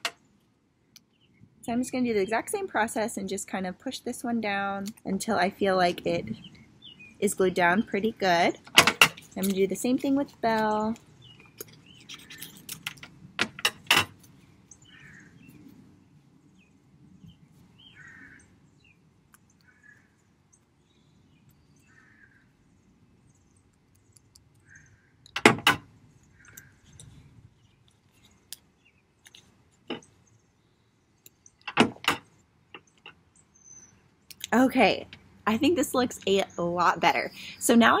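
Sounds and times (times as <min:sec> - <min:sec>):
faint bird chirps: 0:32.8 - 0:34.1.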